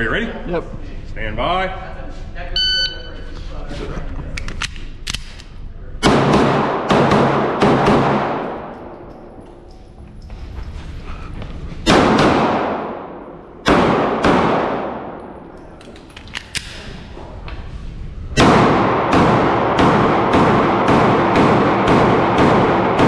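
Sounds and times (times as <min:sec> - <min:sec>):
pistol shots echoing indoors: 0:06.0 - 0:10.0, 0:11.8 - 0:16.8, 0:18.3 - 0:23.0.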